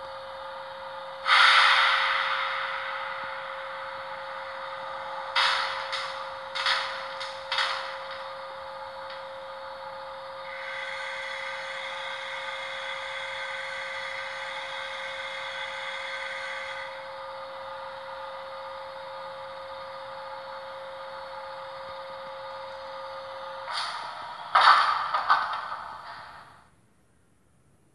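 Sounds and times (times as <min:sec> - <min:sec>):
electrical humming tone: 0:00.0 - 0:26.8
high electrical whine: 0:00.9 - 0:17.9.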